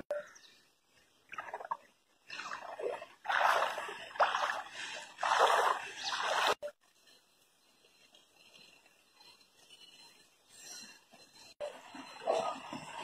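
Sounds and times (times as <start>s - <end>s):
floodwater splashing: 1.3s - 6.6s.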